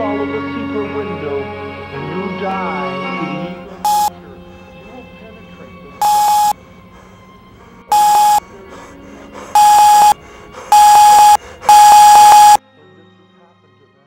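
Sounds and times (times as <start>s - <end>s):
alarm clock beeping: 3.8s - 4.1s, 6.0s - 6.5s, 7.9s - 8.4s, 9.6s - 12.6s.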